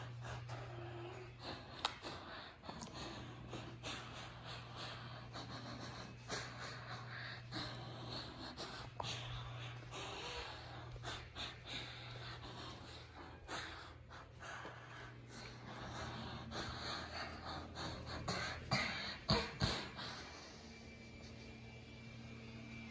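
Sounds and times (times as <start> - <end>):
person breathing heavily: 0.0 - 21.0
low steady hum: 0.0 - 22.9
socked footsteps on rug and tile: 7.4 - 16.4.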